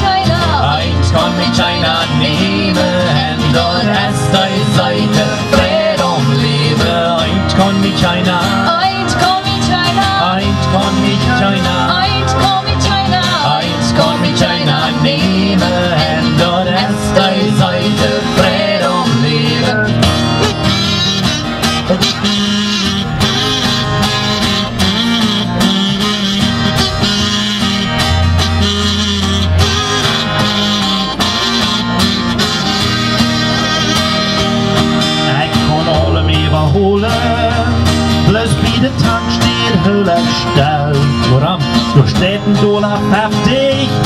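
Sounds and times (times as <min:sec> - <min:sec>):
acoustic guitars strumming: 0:00.0 - 0:44.0
wavering melody line: 0:11.4 - 0:37.8.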